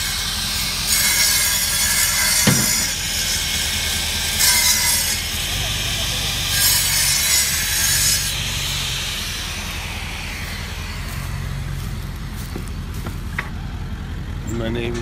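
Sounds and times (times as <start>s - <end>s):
power saw grinding concrete: 0.0s - 13.5s
truck engine running: 2.4s - 4.4s, 5.1s - 15.0s.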